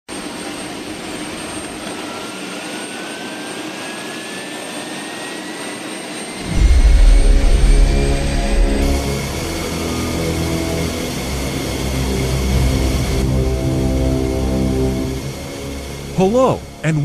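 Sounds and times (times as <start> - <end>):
jet engine whine: 0.1 - 17.0
loud deep rumble: 6.4 - 17.0
steady rushing noise: 6.4 - 17.0.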